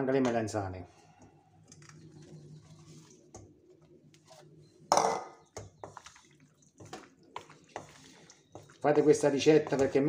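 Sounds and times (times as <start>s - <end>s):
wooden spoon scrapes and taps: 0.2s - 4.5s, 5.4s - 10.0s.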